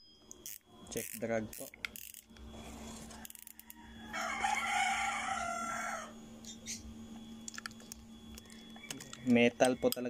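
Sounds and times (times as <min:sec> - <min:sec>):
steady low hum: 0:00.0 - 0:10.0
rooster crowing: 0:03.0 - 0:06.3, 0:08.7 - 0:10.0.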